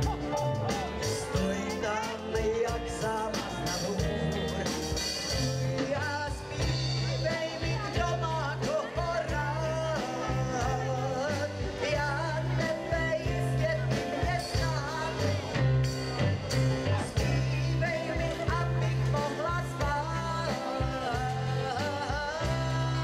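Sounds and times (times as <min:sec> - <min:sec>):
drums: 0:00.0 - 0:23.0
electric bass low notes: 0:00.0 - 0:23.0.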